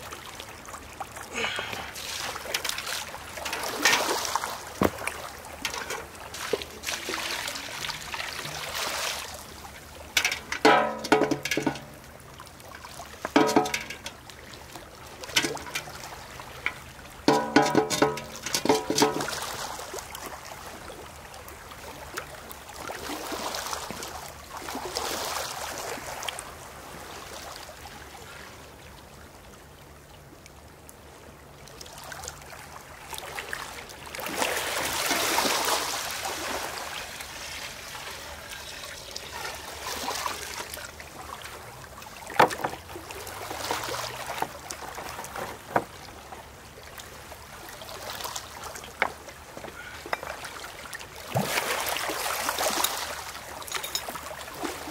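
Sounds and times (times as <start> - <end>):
small waves washing over stones: 0.0 - 20.8, 22.7 - 27.5, 33.2 - 54.9
water poured into metal bucket: 1.9 - 4.5, 10.1 - 12.0, 13.3 - 14.2, 16.6 - 19.6.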